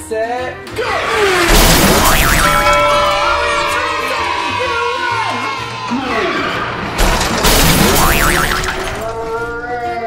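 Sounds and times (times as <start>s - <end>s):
background music: 0.0s - 10.0s
loud toy track crash: 1.3s - 2.9s, 6.8s - 9.3s.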